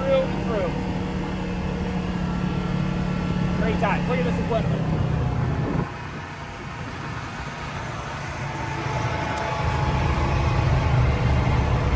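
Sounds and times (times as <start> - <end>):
side-by-side engine under throttle: 0.0 - 11.9.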